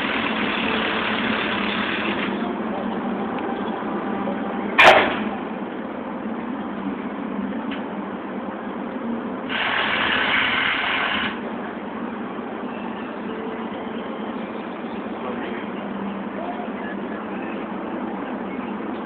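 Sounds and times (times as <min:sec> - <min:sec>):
truck engine idling: 0:00.0 - 0:07.6
metallic clank of fence panel: 0:04.8 - 0:05.3.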